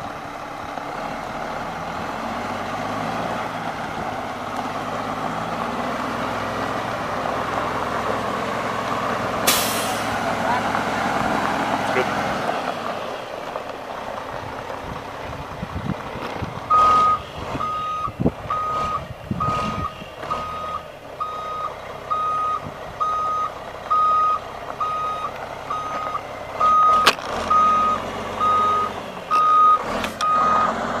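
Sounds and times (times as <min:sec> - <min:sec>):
diesel engine running: 0:00.0 - 0:31.0
truck backup alarm beeping: 0:01.6 - 0:07.8, 0:16.7 - 0:31.0.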